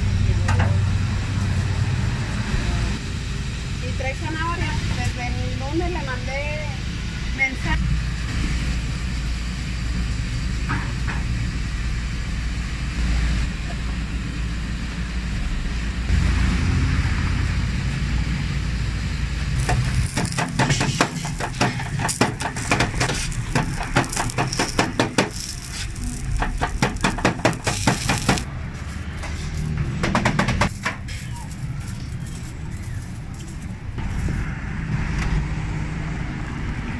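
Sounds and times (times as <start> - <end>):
low background rumble: 19.1 - 34.0.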